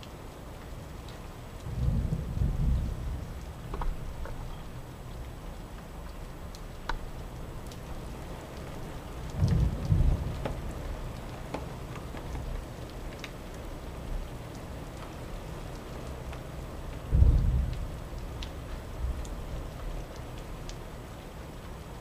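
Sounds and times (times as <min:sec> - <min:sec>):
raindrops tapping: 0:00.0 - 0:22.0
steady rain: 0:00.0 - 0:22.0
low rumble of thunder: 0:01.6 - 0:05.6, 0:09.2 - 0:11.4, 0:16.9 - 0:20.1.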